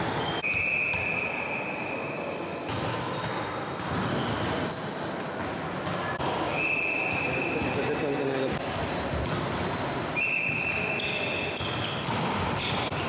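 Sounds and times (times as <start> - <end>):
distant voices in a hall: 0.0 - 13.0
ball bounces echoing: 0.1 - 1.4, 2.6 - 6.3, 7.0 - 13.0.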